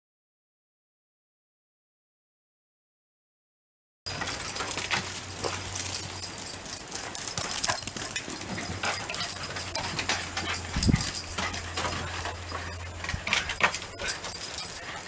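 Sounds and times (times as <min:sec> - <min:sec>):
steady low hum: 0:04.1 - 0:15.0
dog claws clicking on concrete: 0:06.8 - 0:15.0.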